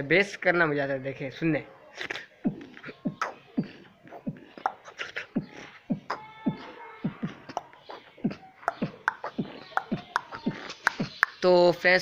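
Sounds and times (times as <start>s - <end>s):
beatboxing click and snare hits: 2.0s - 11.4s
beatboxing bass-drum kicks: 2.4s - 11.3s.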